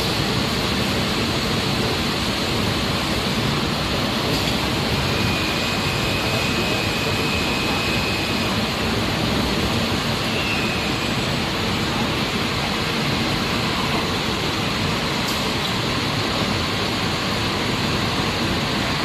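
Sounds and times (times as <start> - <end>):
faint high whine: 4.9 - 11.6.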